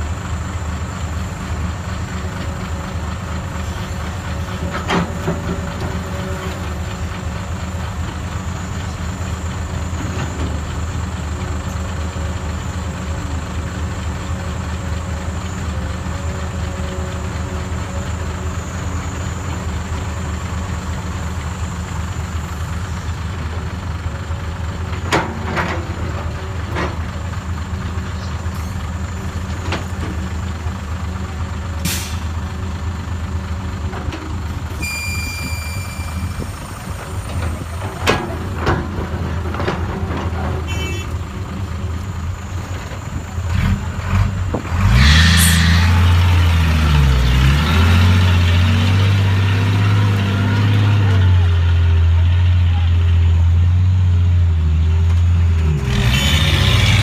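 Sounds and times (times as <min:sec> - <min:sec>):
diesel engines running: 0:00.0 - 0:57.0
dump truck engine pulling off: 0:00.0 - 0:57.0
air brake hissing: 0:31.8 - 0:32.4
short beep: 0:34.8 - 0:36.4.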